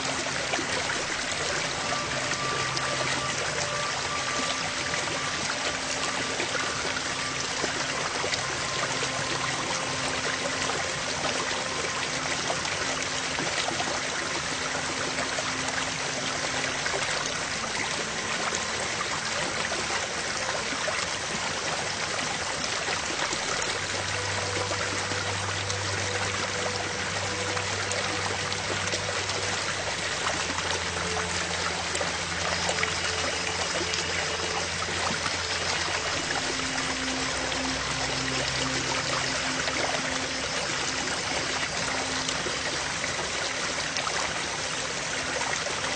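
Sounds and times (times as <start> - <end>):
faint sustained low tones: 0.0 - 45.9
rushing water-like noise: 0.0 - 45.9.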